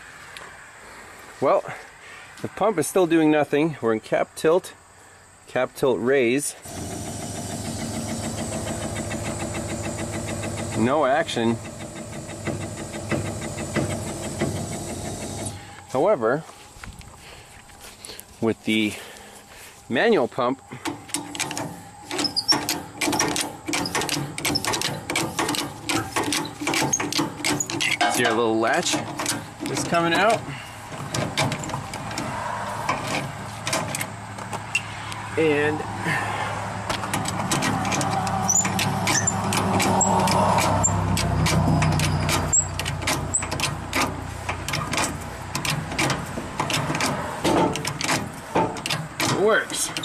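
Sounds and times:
hydraulic pump clicking and knocking: 6.6s - 15.7s, 20.8s - 34.8s, 36.8s - 50.0s.

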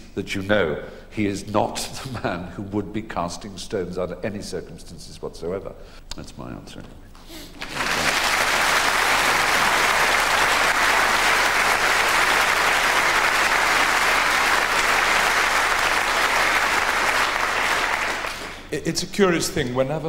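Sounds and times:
audience applauding: 7.6s - 18.7s.

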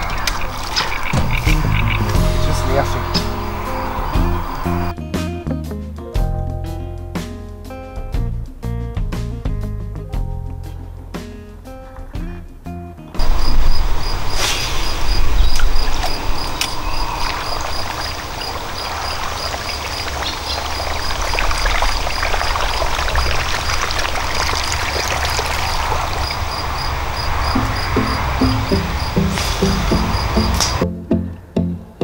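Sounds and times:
lure splashing and gurgling on water: 15.5s - 27.0s.

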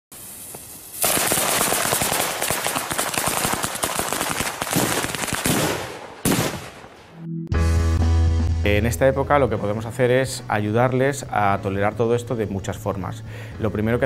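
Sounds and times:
firecrackers banging: 0.1s - 7.2s.

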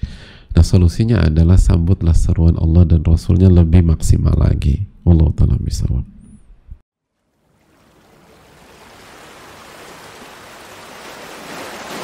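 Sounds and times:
waves washing onto pebbles: 7.2s - 12.0s.

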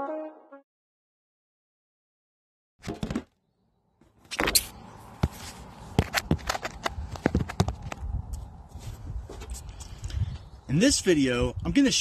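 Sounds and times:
outdoor background noise: 2.8s - 12.0s.

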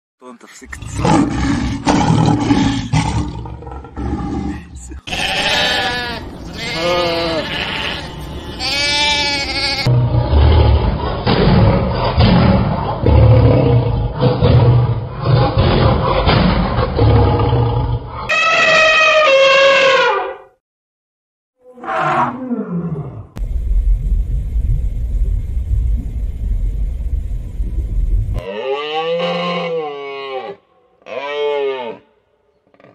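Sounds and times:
steady low rumbling: 0.6s - 5.1s, 23.4s - 28.5s
lioness roaring: 0.7s - 8.0s, 9.8s - 18.4s, 21.7s - 23.4s
elephant trumpeting: 0.8s - 10.7s, 18.3s - 20.4s
sheep bleating: 5.0s - 9.9s.

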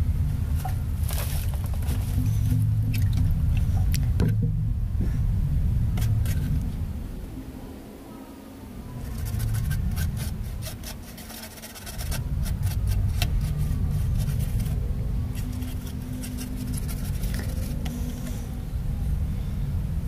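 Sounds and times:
steady low rumble: 0.0s - 20.0s
toothbrush scrubbing circuit board: 9.0s - 14.8s, 15.4s - 18.2s.

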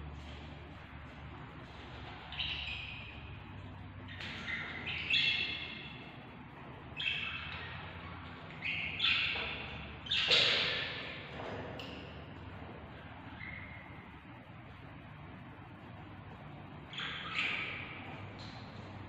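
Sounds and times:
steady low hum: 0.0s - 19.0s
budgerigar chicks chirping: 1.9s - 12.2s, 16.0s - 19.0s.

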